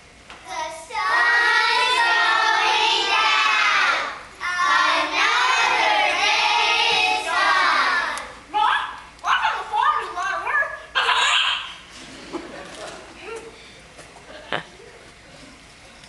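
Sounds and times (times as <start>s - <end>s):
young children singing: 0.5s - 8.4s.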